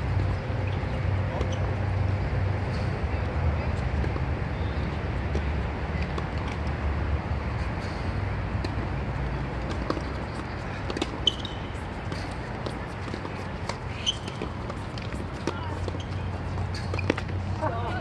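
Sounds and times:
low outdoor rumble: 0:00.0 - 0:18.0
sharp taps and clicks of court play: 0:05.2 - 0:06.8, 0:08.6 - 0:17.5.

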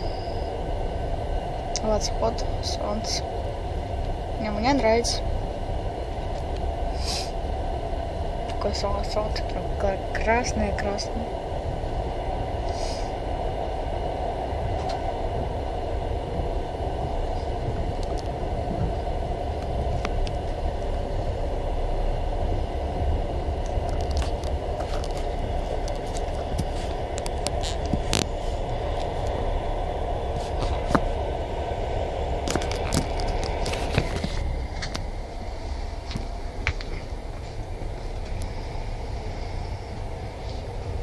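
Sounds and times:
train rumble and rattle: 0:00.0 - 0:41.0.

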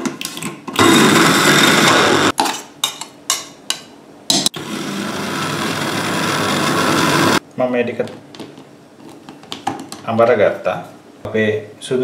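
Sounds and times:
electric spice grinder running: 0:00.8 - 0:02.3, 0:04.6 - 0:07.4.

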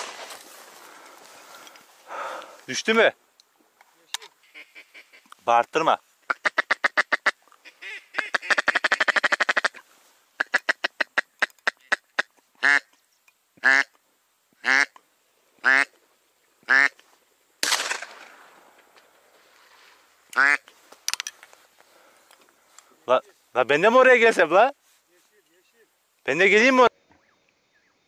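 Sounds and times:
duck quacking: 0:04.4 - 0:05.3, 0:06.3 - 0:09.8, 0:10.4 - 0:12.9, 0:13.6 - 0:14.0, 0:14.6 - 0:15.0, 0:15.6 - 0:15.9, 0:16.6 - 0:17.0, 0:20.3 - 0:20.7.

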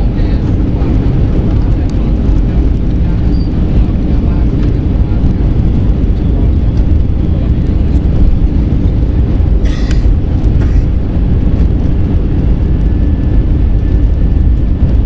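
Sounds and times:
jet engine cabin rumble: 0:00.0 - 0:15.0.

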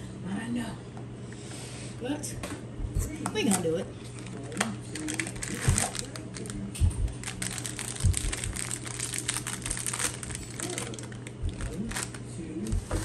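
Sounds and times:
packaging crinkling: 0:04.1 - 0:13.0
soft low thumps: 0:06.8 - 0:08.7, 0:11.4 - 0:11.8.

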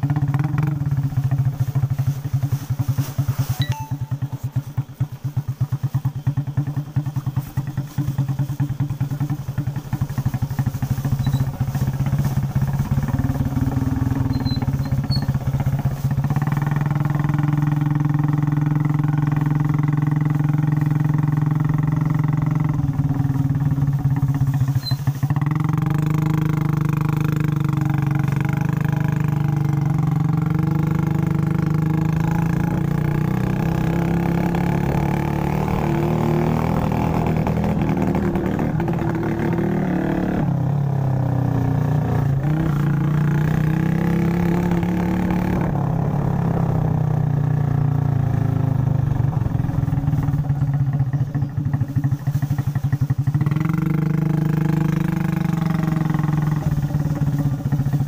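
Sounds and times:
small motorbike engine: 0:00.0 - 0:58.0.

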